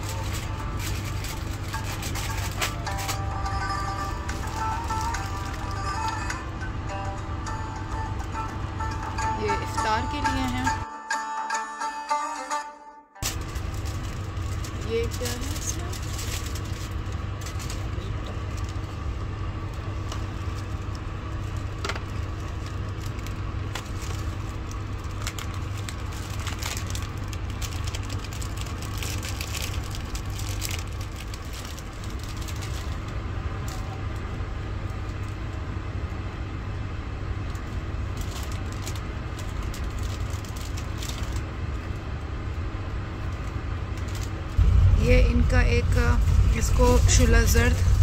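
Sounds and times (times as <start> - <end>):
train rumbling inside carriage: 0.0 - 10.8, 13.2 - 48.0.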